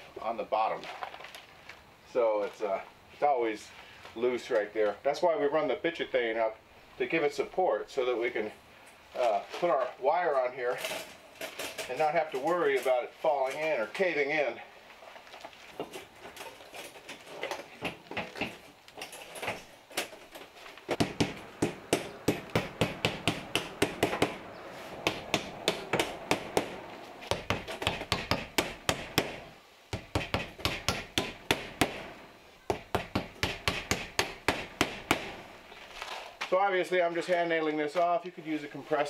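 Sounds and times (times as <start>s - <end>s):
hammer striking nails: 20.9s - 24.4s, 25.0s - 35.5s.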